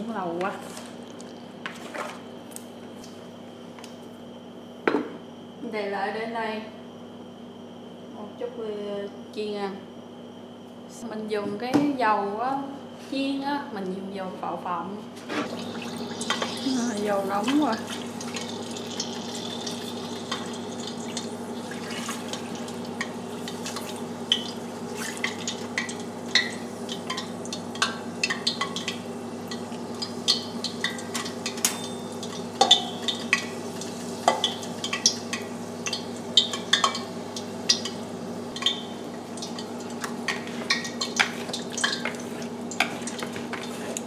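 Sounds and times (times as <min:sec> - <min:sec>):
hot oil crackling and popping: 0:15.4 - 0:44.0.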